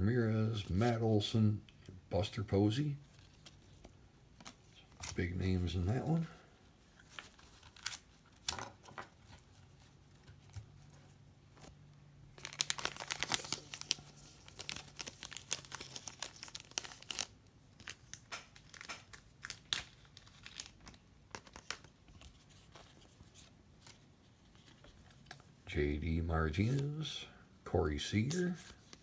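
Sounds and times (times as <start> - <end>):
cards being handled: 3.0 - 5.3, 12.4 - 25.6, 26.5 - 27.1, 28.1 - 29.0
plastic wrapping crinkling and tearing: 7.0 - 8.5, 11.6 - 25.4.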